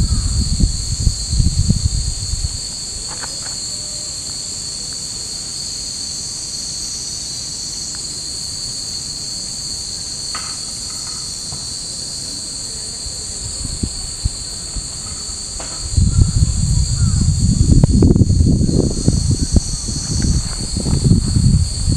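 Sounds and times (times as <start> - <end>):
cicadas buzzing: 0.0 - 21.9.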